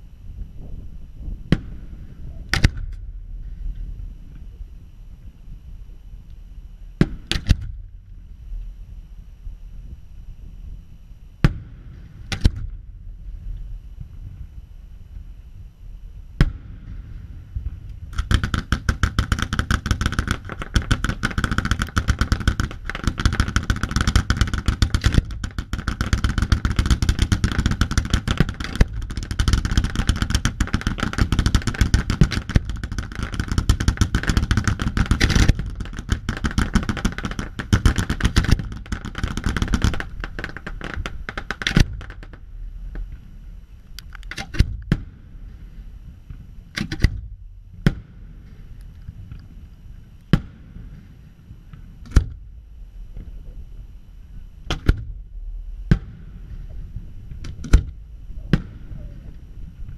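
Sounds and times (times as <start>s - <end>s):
fireworks cracking and popping: 16.4s - 49.6s.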